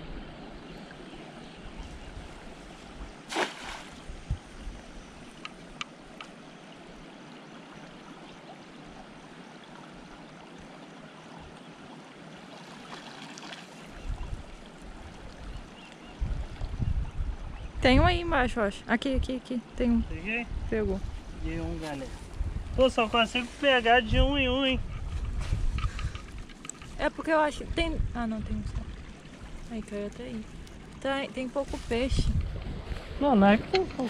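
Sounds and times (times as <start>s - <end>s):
small stream rushing: 0.0s - 16.8s, 28.5s - 32.0s
net splashing into water: 3.3s - 4.1s.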